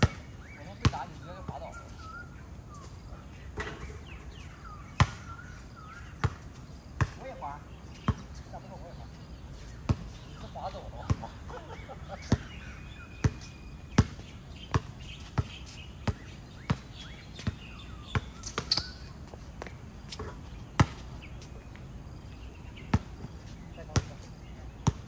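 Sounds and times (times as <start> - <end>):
basketball bouncing on hard court: 0.0 - 1.7, 5.0 - 5.3, 7.0 - 7.2, 13.2 - 21.0.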